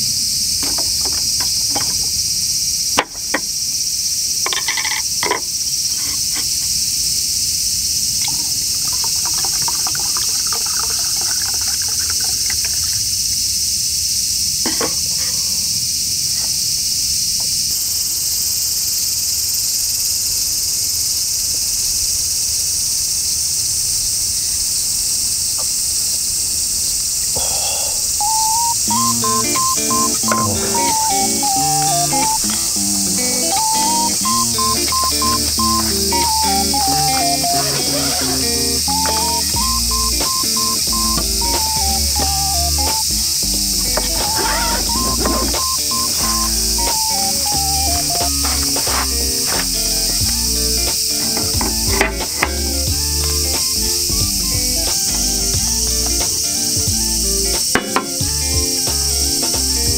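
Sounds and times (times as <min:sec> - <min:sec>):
insects shrilling: 0:00.0 - 0:57.7
liquid pouring into glass: 0:08.2 - 0:13.2.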